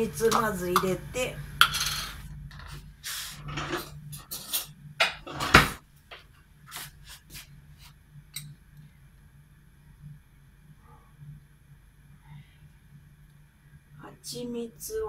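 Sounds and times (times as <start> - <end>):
kitchen utensils clattering: 3.4 - 5.8.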